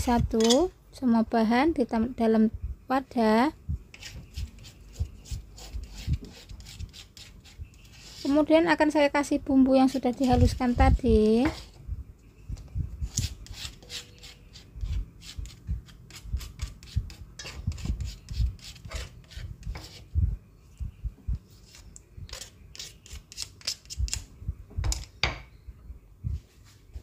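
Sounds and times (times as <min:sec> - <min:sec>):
utensil scraping steel bowl: 0:13.1 - 0:20.1
utensil scraping stone mortar: 0:13.1 - 0:20.1, 0:21.7 - 0:24.0.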